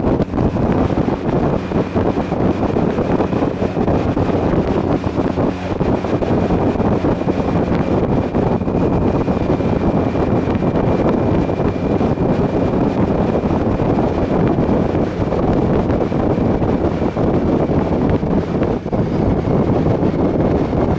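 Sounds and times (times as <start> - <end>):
motorcycle engine and road drone: 0.0 - 20.9
wind buffeting microphone: 0.0 - 20.9.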